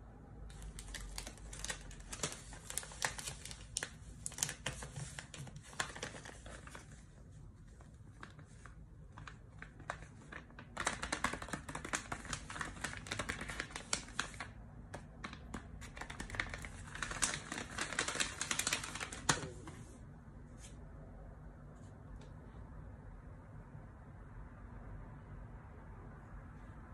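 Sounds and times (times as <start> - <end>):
paper crinkling and crackling: 0.5 - 20.0.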